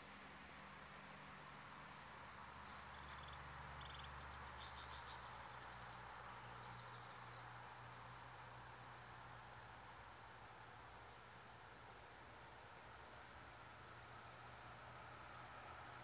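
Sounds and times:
insects chirping: 0:01.8 - 0:07.3, 0:15.1 - 0:16.0.

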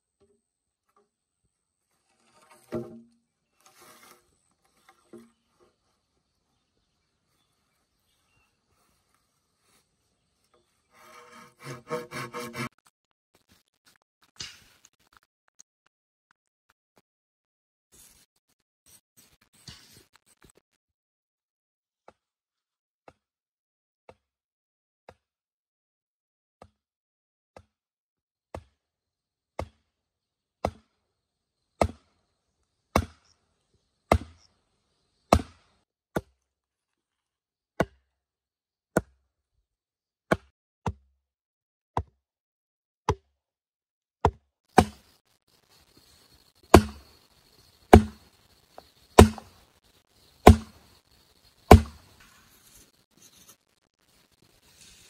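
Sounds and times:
tool chopping wood: 0:11.0 - 0:12.8, 0:28.5 - 0:28.8, 0:29.6 - 0:29.8, 0:30.6 - 0:30.9, 0:31.8 - 0:32.1, 0:32.9 - 0:33.2, 0:34.1 - 0:34.5, 0:35.3 - 0:36.4, 0:37.8 - 0:38.0, 0:39.0 - 0:39.2, 0:40.3 - 0:41.1, 0:44.2 - 0:45.0, 0:46.7 - 0:47.0, 0:47.9 - 0:48.2, 0:49.2 - 0:49.5, 0:50.4 - 0:50.8, 0:51.7 - 0:52.0.

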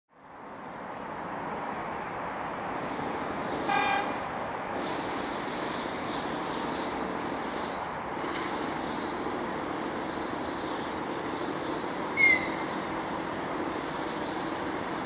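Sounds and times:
train rumbling: 0:00.3 - 0:15.0
high-pitched horn toot: 0:03.7 - 0:04.2.

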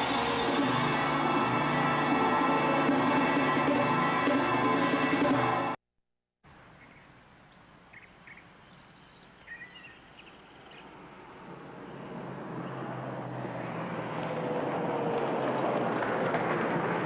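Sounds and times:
faint bird chirps: 0:06.8 - 0:10.9
rushing noise: 0:10.9 - 0:17.0.

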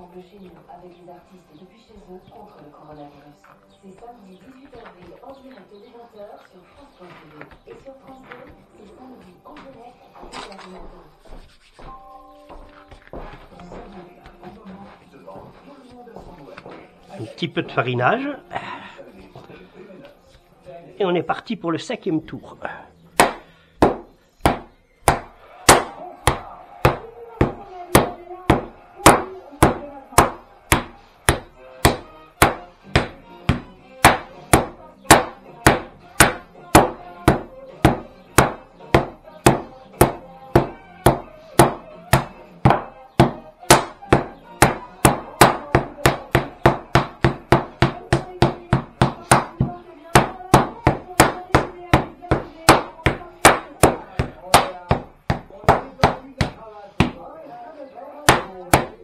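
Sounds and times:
rolling pin beating dough: 0:23.2 - 0:57.2, 0:58.2 - 0:59.0.

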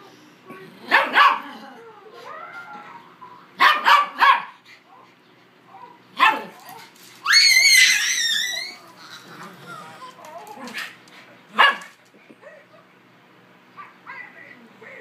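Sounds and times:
small dogs barking: 0:00.8 - 0:01.6, 0:03.6 - 0:05.1, 0:05.8 - 0:08.7, 0:09.8 - 0:12.9.

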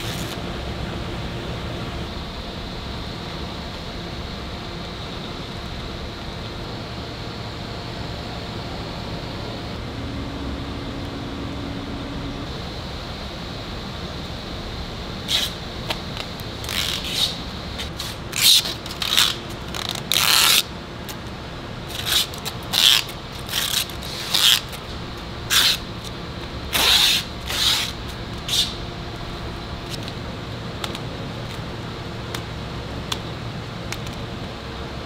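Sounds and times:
packing tape being pulled: 0:00.0 - 0:00.4, 0:15.3 - 0:21.2, 0:21.9 - 0:28.8
factory machinery humming: 0:00.0 - 0:35.0
plastic film crinkling: 0:16.6 - 0:20.7.

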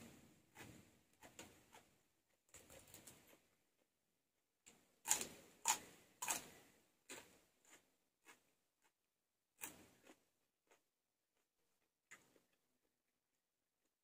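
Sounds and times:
person chewing crunchy vegetables: 0:05.0 - 0:13.0.

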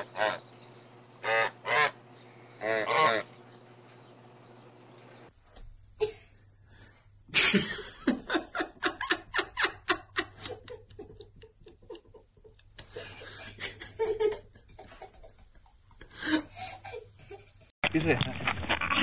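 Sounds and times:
girl giggling: 0:12.9 - 0:15.4, 0:16.1 - 0:17.7.

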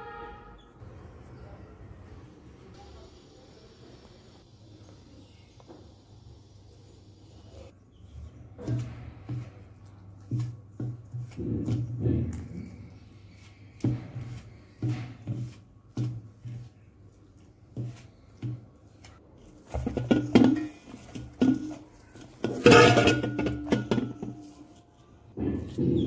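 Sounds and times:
hand kneading dough: 0:08.1 - 0:22.7
metal bowl knocks and clinks: 0:19.8 - 0:24.8.

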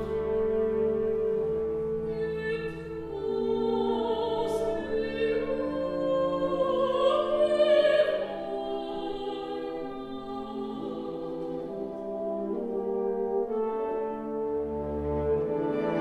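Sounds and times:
woman singing operatically: 0:02.0 - 0:12.2.

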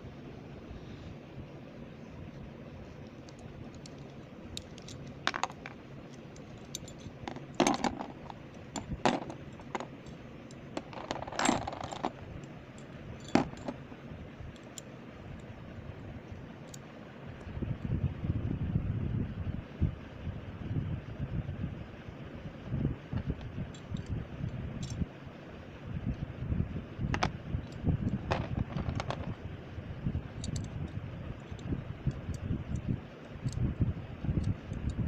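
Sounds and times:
low background hum: 0:00.0 - 0:35.0
toy parts clicking and clinking: 0:03.3 - 0:12.5, 0:13.2 - 0:13.8, 0:27.1 - 0:29.4, 0:30.4 - 0:30.8.

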